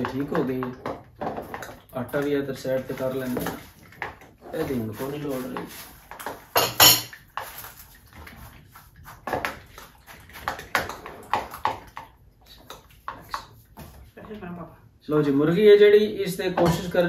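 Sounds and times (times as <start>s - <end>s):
kitchen utensils clattering: 6.2s - 7.4s.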